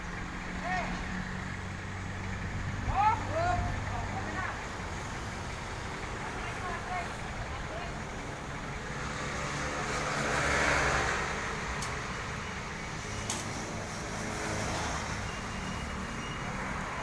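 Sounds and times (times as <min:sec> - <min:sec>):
truck engine rumbling: 0:00.0 - 0:17.0.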